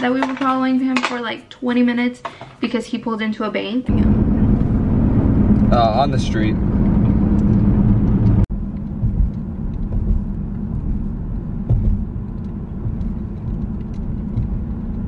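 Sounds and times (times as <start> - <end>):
car engine and tyres rumbling: 3.9 - 15.0.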